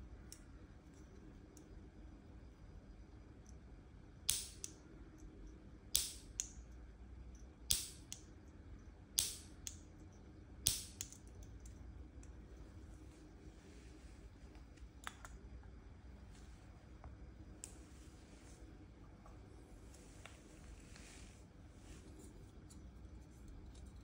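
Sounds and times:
stove igniter snapping and clicking: 4.3s - 4.8s, 5.9s - 6.6s, 7.7s - 8.2s, 9.2s - 9.8s, 10.6s - 11.2s.

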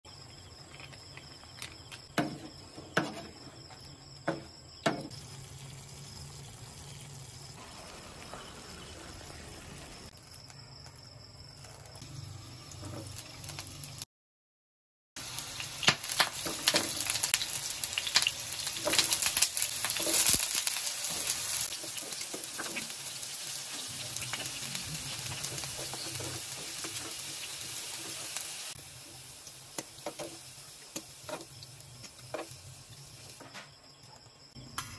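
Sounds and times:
vegetables frying in hot oil: 4.6s - 10.2s, 11.6s - 14.0s, 15.2s - 33.5s.

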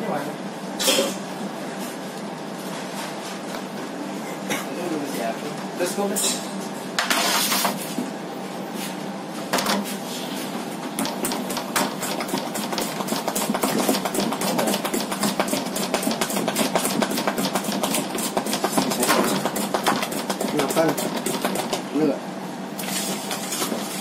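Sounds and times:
spatula beating batter in metal bowl: 11.0s - 21.9s.

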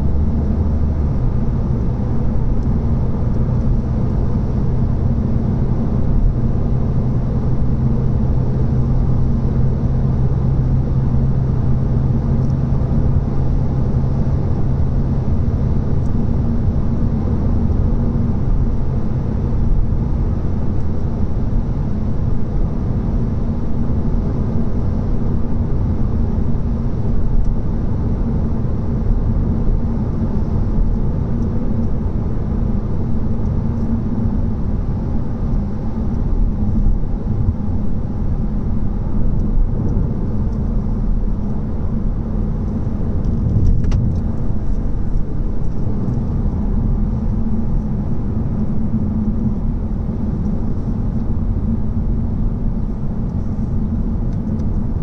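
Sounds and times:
car driving rumble: 0.0s - 55.0s.

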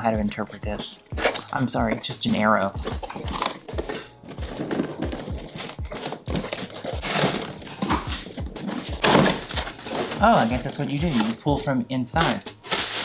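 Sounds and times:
background music with low beat: 0.0s - 13.0s
cardboard box scraping and crinkling: 1.2s - 2.1s, 2.7s - 11.4s.

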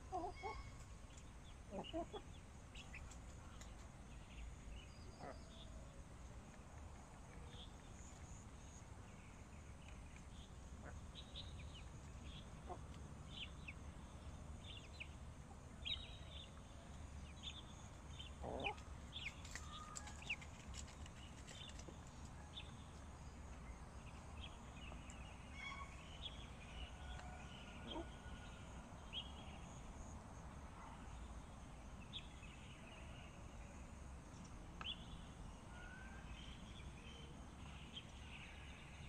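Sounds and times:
hens clucking: 18.4s - 18.8s.

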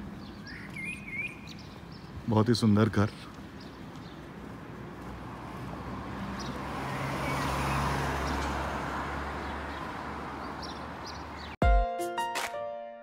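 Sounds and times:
car passing: 4.4s - 11.6s
music: 11.6s - 13.0s.

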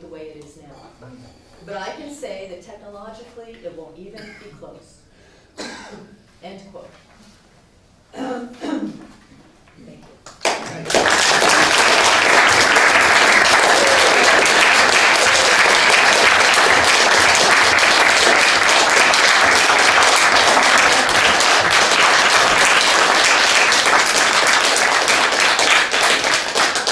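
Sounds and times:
people applauding: 10.2s - 26.9s.

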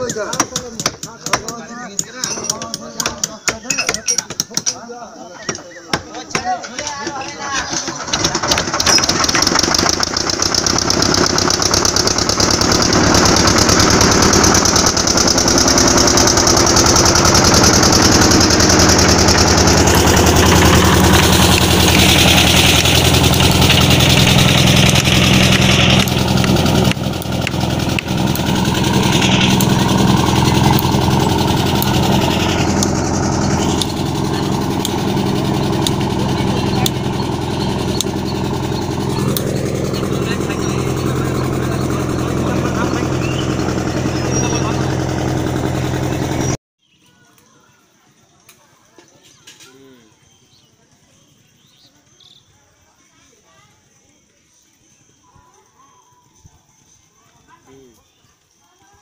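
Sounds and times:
boat engine starting and running: 7.5s - 46.6s.

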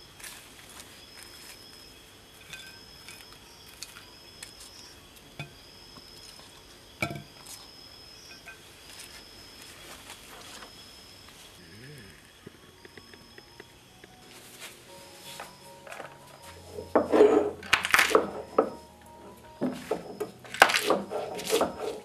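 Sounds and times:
insects trilling: 0.0s - 22.0s.

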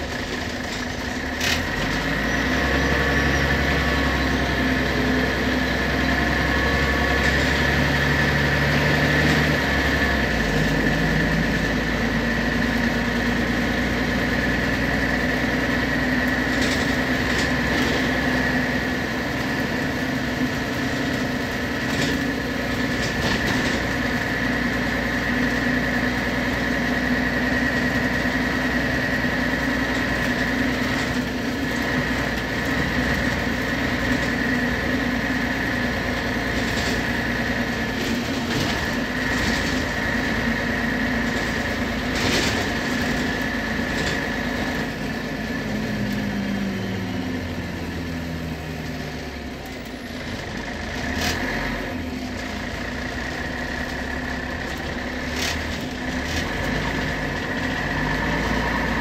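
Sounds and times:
bus engine hum and whine: 0.0s - 59.0s.

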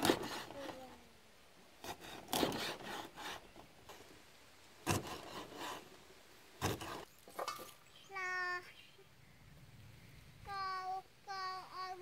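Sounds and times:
blade scraping wood: 0.0s - 0.8s, 1.8s - 4.1s, 4.8s - 6.0s, 6.6s - 7.1s
cleaver chopping on wooden block: 4.8s - 5.7s, 6.6s - 7.0s.

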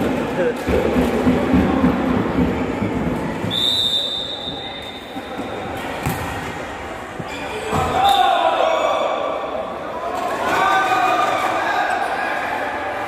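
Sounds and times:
chatter in sports hall: 0.0s - 13.0s
referee's whistle blast: 3.5s - 5.2s
ball being struck: 6.0s - 6.4s.

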